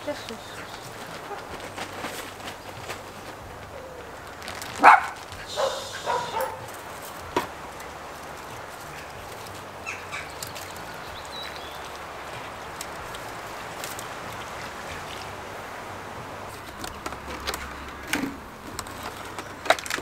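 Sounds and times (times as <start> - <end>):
dog barking: 4.8 - 6.7.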